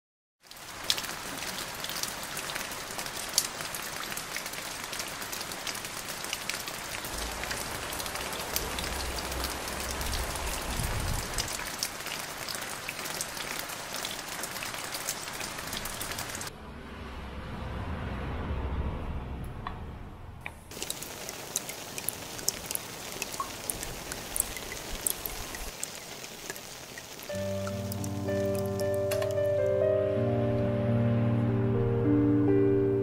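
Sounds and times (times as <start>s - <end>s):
rain on a tiled roof: 0.4s - 16.5s, 20.7s - 30.6s.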